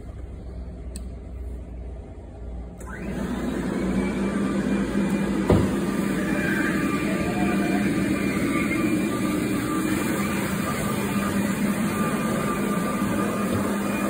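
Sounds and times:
scrubber motors humming: 2.8s - 14.0s.

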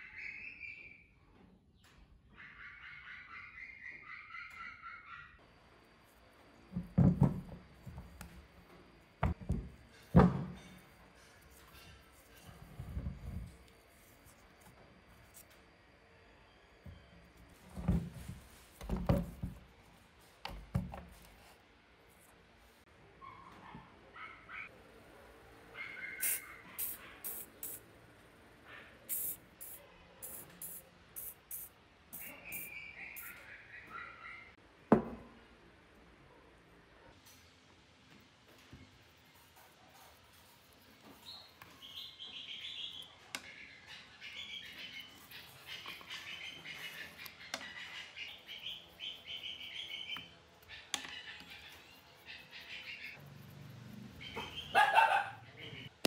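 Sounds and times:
aerosol spray hisses: 26.2s - 27.8s, 29.1s - 33.3s
rusted screws squeaking and grating: 32.2s - 33.4s.

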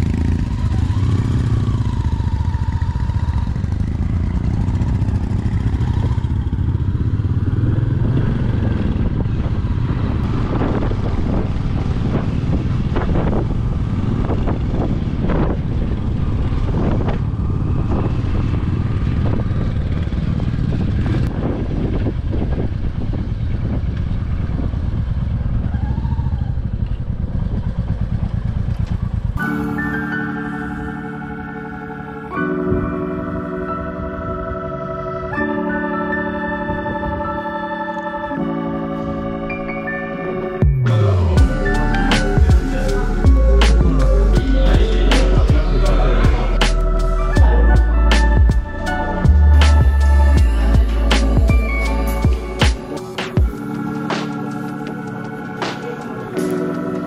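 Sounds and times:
motorcycle engine droning: 0.0s - 57.0s.

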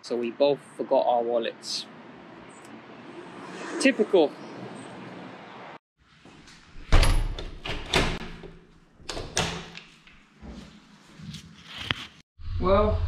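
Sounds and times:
door and latch clunking: 6.9s - 9.8s.

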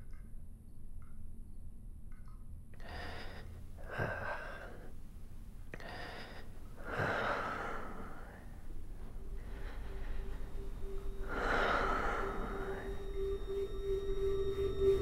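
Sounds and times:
man breathing heavily: 2.8s - 14.0s.

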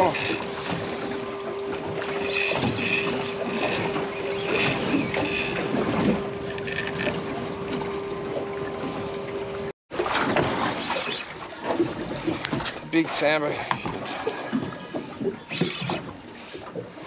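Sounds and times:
steady hum: 0.0s - 8.6s
wind and water around boat: 0.0s - 17.0s.

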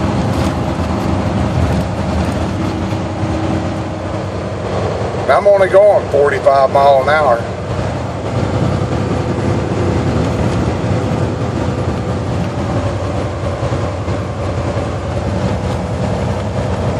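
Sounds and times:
diesel engine hum: 0.0s - 16.9s
road and wind noise: 0.0s - 16.9s.

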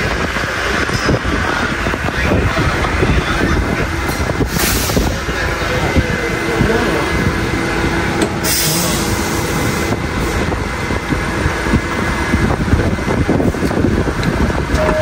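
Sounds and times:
subway train low rumble: 0.0s - 15.0s
air hiss: 8.4s - 9.4s
brief steady tone: 14.7s - 15.0s.

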